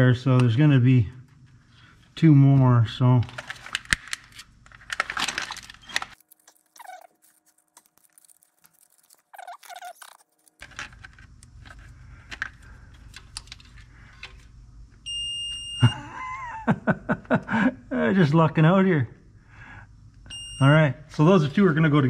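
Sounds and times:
wires clicking and rattling: 3.2 - 14.3
multimeter continuity beep: 15.1 - 16.0, 20.3 - 20.8.

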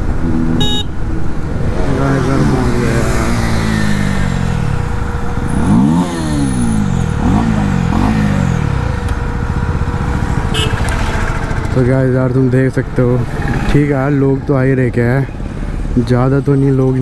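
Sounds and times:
motorcycle engine revs falling: 0.1 - 14.5
motorcycle throttle blips: 0.3 - 1.2, 4.8 - 12.0.

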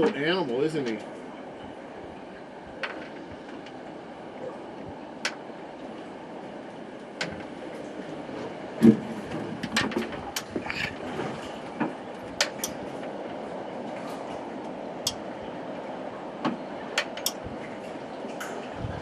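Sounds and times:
boat motor running: 0.0 - 19.0
water rushing past hull: 0.0 - 19.0
sharp clicks and knocks: 9.6 - 10.9, 16.4 - 17.4.

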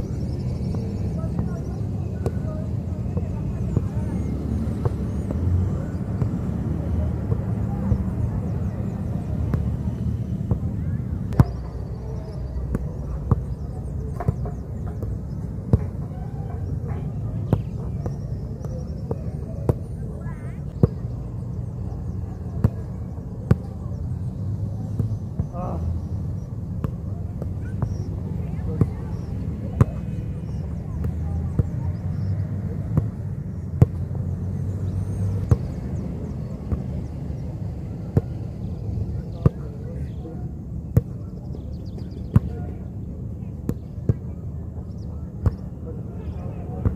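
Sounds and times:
birds chirping faintly: 0.0 - 44.1
football being kicked: 10.4 - 10.7, 11.3 - 11.7, 12.6 - 16.0, 17.4 - 19.9, 22.6 - 23.8, 29.8 - 31.8, 32.9 - 34.0, 35.4 - 35.8.

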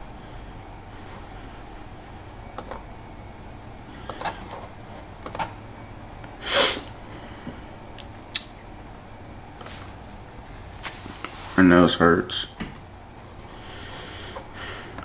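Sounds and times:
keyboard or mouse clicks: 2.6 - 2.8, 4.1 - 4.4, 5.2 - 5.5.

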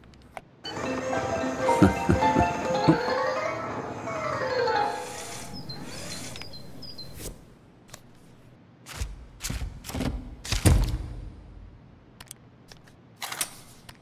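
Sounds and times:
music: 0.6 - 5.7.

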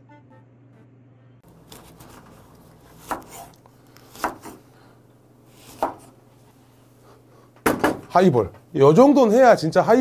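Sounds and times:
knife cutting lemon: 1.6 - 4.6.

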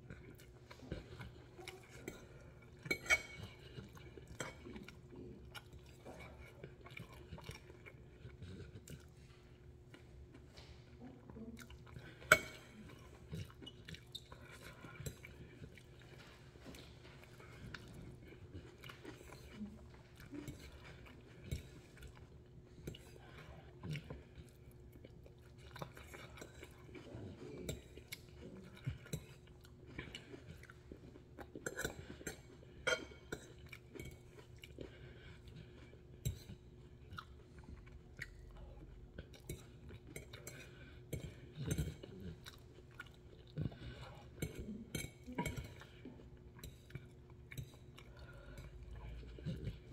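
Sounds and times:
person chewing food: 0.0 - 49.9.

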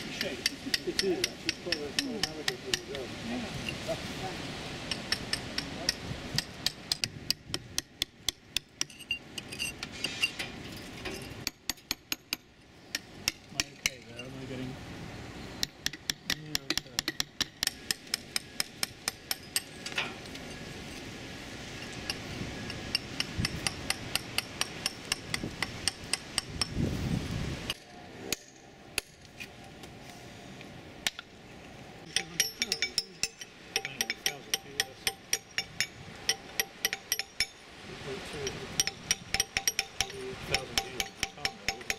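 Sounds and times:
hammers tapping chisels on metal: 0.0 - 3.0, 4.9 - 14.4, 15.6 - 20.5, 21.8 - 26.8, 32.0 - 37.6, 38.4 - 41.9.

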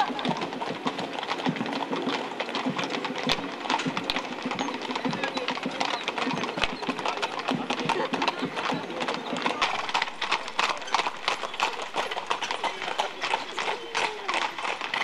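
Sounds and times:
hooves clip-clopping on asphalt: 0.0 - 15.0.

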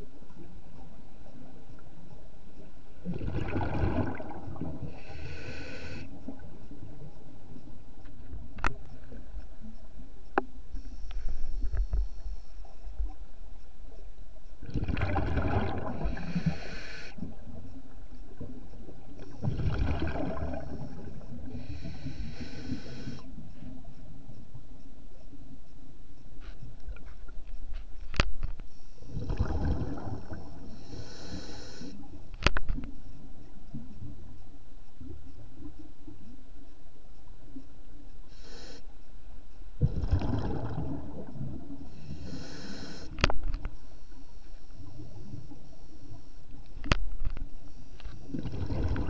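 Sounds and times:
diver breathing through regulator: 4.9 - 6.1, 15.9 - 17.2, 21.4 - 23.3, 29.0 - 32.1, 38.3 - 38.9, 41.9 - 43.2
faint clicks: 5.7 - 14.6, 31.4 - 38.2, 42.8 - 48.2.

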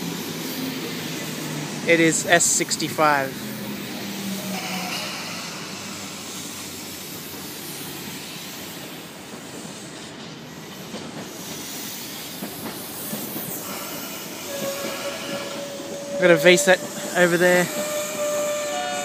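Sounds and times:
electric train running past: 0.0 - 19.0
steel wheels on rails: 6.6 - 19.0.

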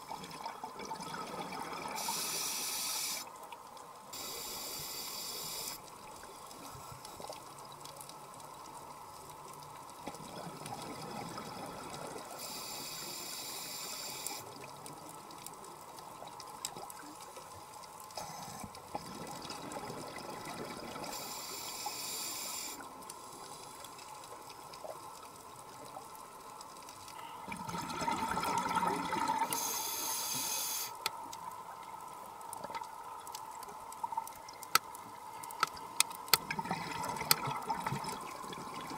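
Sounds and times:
underwater watery hiss: 1.4 - 3.4, 4.1 - 5.9, 12.0 - 14.7, 21.0 - 23.9, 27.2 - 31.1
regulator breath and bubbles: 27.1 - 31.0, 36.4 - 38.9.

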